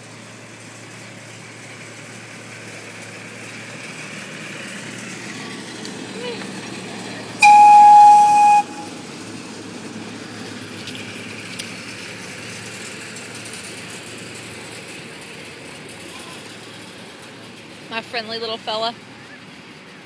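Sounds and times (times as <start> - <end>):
train running past: 0.5 - 11.4
train horn blast: 7.4 - 9.0.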